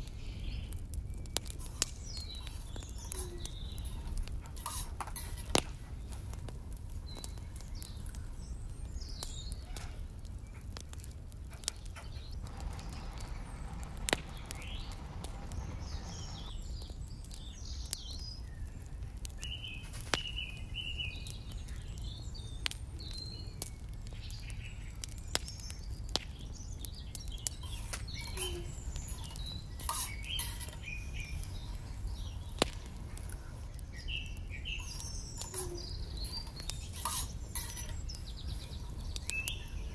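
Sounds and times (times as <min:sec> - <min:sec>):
birds chirping: 0:00.0 - 0:39.9
low steady rumble: 0:11.3 - 0:17.5.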